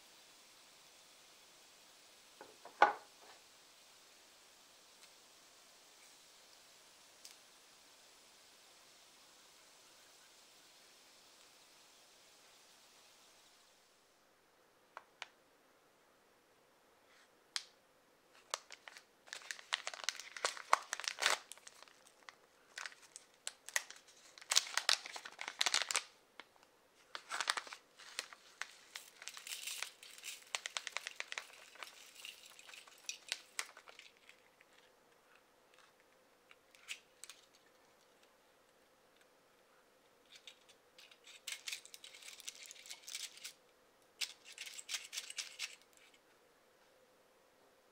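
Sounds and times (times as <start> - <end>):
plastic pouch crinkling: 18.4 - 26.5, 27.1 - 34.9, 40.3 - 43.6, 44.2 - 46.2.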